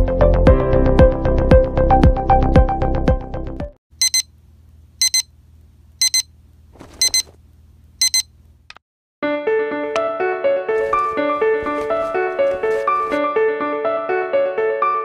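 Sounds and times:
alarm clock double beeps: 4.0s - 4.3s, 5.0s - 5.3s, 6.0s - 6.3s, 7.0s - 7.3s, 8.0s - 8.3s
brief rustle: 10.8s - 13.2s.

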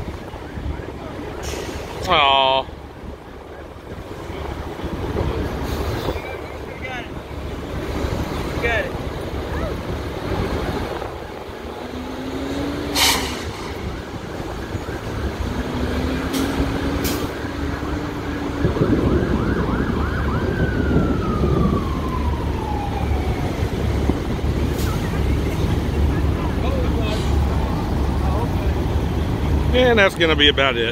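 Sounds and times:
emergency vehicle siren: 0.0s - 29.7s.

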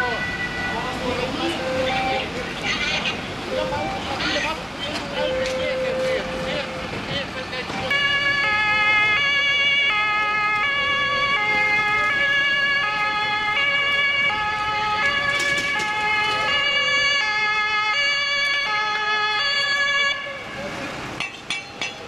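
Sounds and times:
two-tone emergency sirens: 0.0s - 2.4s, 3.4s - 7.0s, 7.7s - 20.8s.

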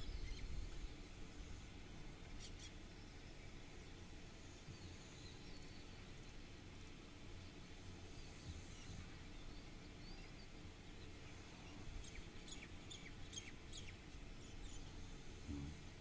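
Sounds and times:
small bird chirping: 0.0s - 1.0s, 8.2s - 15.1s
faint low rumble: 14.0s - 16.0s.

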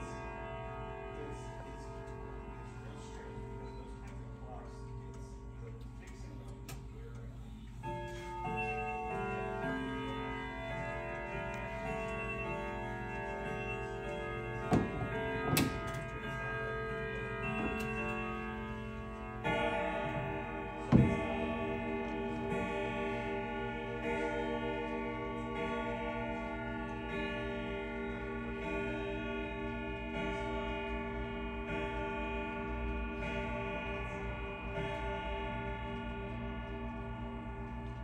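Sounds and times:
clock ticking: 0.0s - 38.0s
grandfather clock chiming: 0.0s - 38.0s.

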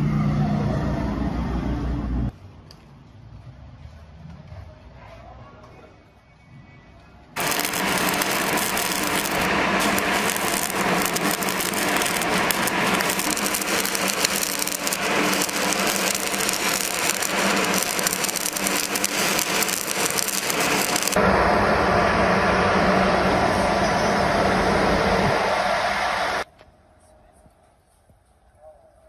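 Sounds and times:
welding arc crackling: 7.4s - 21.2s
low rumble: 7.4s - 26.5s.

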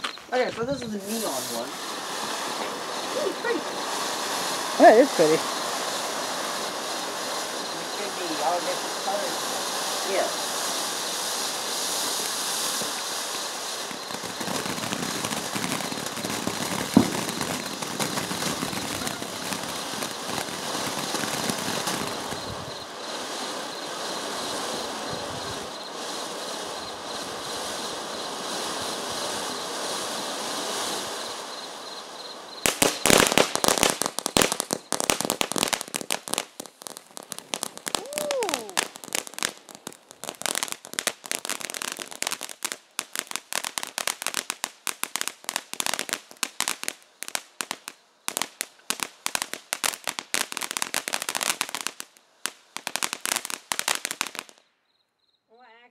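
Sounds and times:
firework hissing sparks: 0.0s - 54.6s
firework crackling pops: 0.0s - 54.8s
firework pop: 16.9s - 17.7s.

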